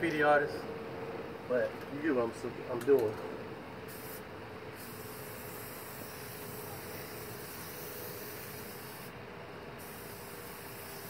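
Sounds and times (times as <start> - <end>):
spray paint can hissing: 3.9 - 9.1, 9.8 - 11.0.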